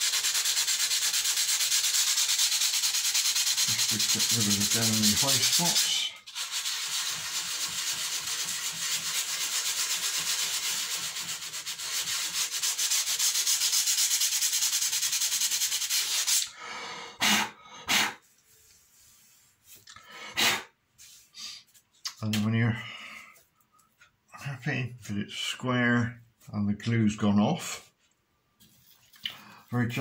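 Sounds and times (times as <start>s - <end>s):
sanding block rasping on wood: 0.0s - 16.4s.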